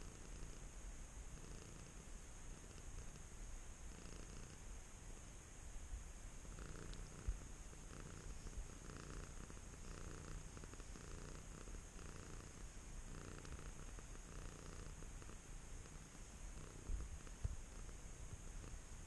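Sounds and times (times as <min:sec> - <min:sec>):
cat purring: 0:00.0 - 0:04.7, 0:06.4 - 0:19.0.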